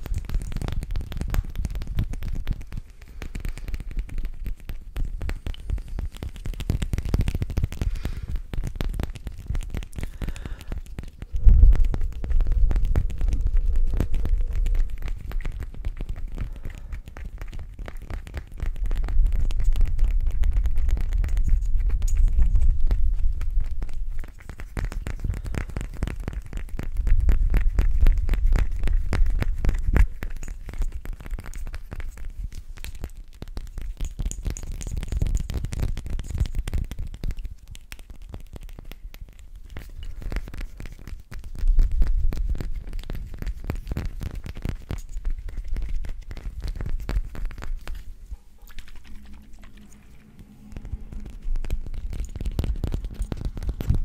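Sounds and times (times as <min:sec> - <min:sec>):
low rumbling handling noise: 0:48.0 - 0:54.0.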